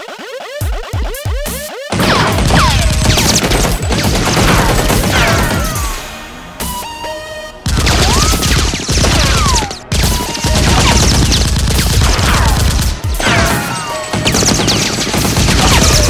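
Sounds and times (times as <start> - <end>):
automatic gunfire bursts: 1.9 - 5.9, 7.7 - 16.0.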